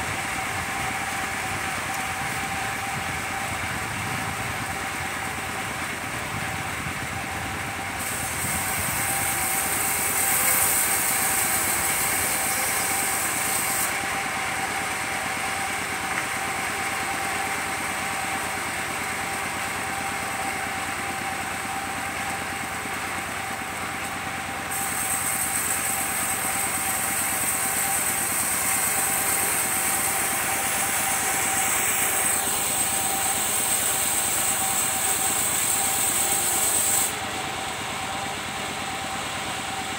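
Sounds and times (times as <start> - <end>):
circular sawmill whining: 0.0 - 39.9
saw blade cutting wood hiss: 8.0 - 14.2, 24.7 - 38.3.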